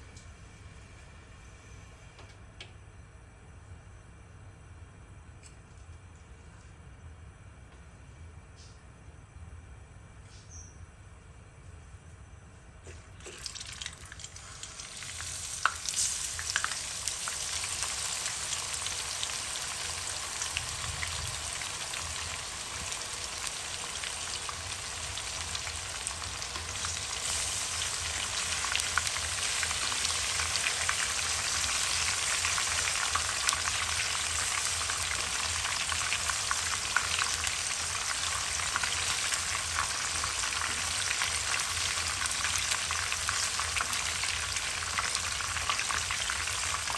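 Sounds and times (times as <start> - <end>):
oil popping and crackling: 12.9 - 46.9
fish sizzling in hot oil: 13.2 - 46.9.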